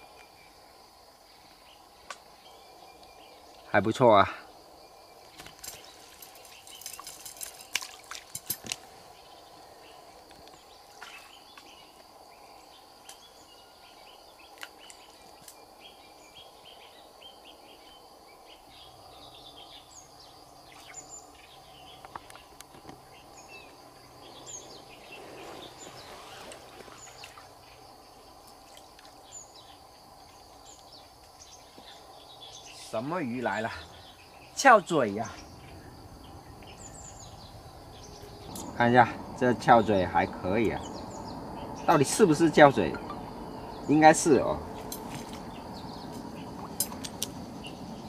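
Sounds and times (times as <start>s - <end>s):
insect drone: 0.0s - 48.0s
rattling and knocking of net: 5.3s - 8.9s
bird chirps: 30.6s - 48.0s.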